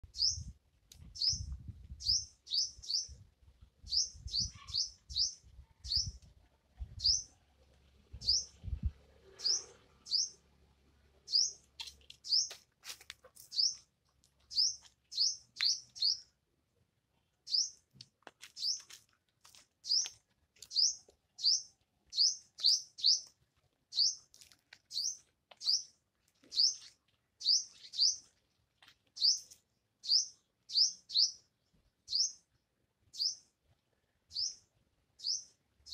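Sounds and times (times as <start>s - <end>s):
small bird chirping: 0.0s - 3.2s, 3.8s - 7.4s, 8.2s - 10.4s, 11.2s - 12.6s, 13.4s - 13.9s, 14.5s - 16.4s, 17.4s - 17.9s, 18.5s - 18.9s, 19.8s - 28.4s, 29.1s - 32.5s, 33.1s - 33.5s, 34.3s - 35.9s.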